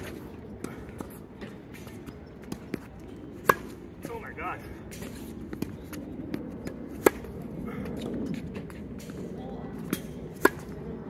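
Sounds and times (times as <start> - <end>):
tennis ball struck by racket: 3.4 - 3.8, 6.4 - 7.4, 9.8 - 10.8.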